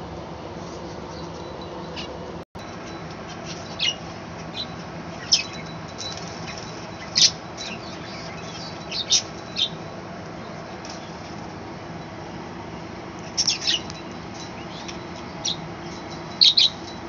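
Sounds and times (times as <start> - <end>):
budgerigars chirping and squawking: 1.1 - 2.2, 2.9 - 9.8, 13.2 - 16.9.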